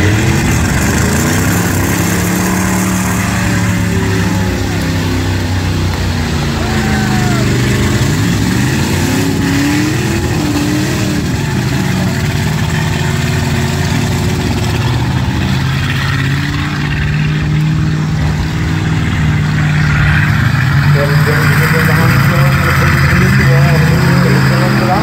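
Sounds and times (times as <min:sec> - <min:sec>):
car engines revving and droning: 0:00.0 - 0:25.0.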